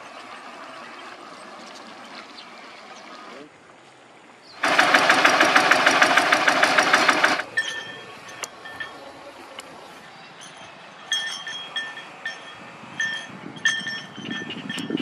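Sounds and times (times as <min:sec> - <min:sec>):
small engine knocking: 0:04.6 - 0:07.5.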